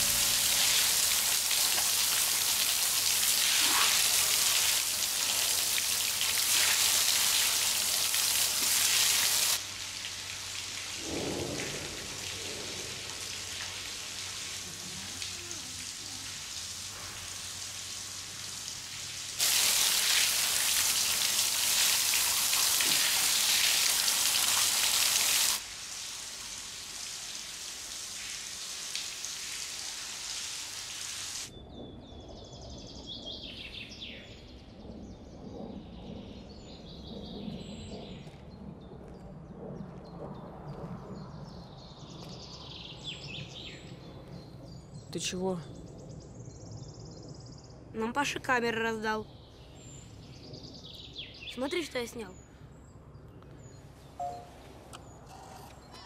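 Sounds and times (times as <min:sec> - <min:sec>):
shower water spraying: 0:00.0 - 0:31.5.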